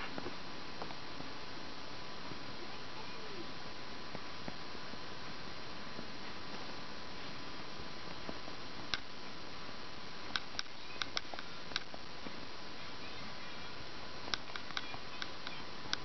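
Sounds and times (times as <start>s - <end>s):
faint high whine: 0.0s - 16.0s
steady hiss: 0.0s - 16.0s
small sharp clicks: 10.3s - 12.0s, 14.3s - 16.0s.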